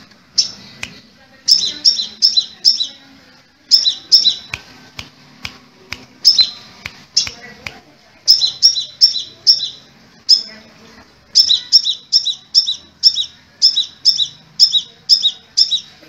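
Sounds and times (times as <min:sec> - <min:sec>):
bird chirping: 0:00.0 - 0:03.1, 0:03.7 - 0:04.6, 0:06.2 - 0:07.4, 0:08.2 - 0:10.7, 0:11.3 - 0:16.0.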